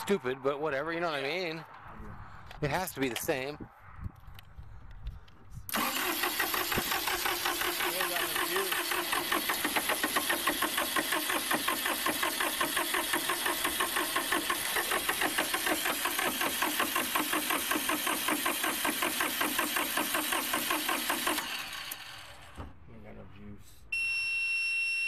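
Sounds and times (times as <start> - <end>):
diesel engine cranking without starting: 5.7 - 22.6.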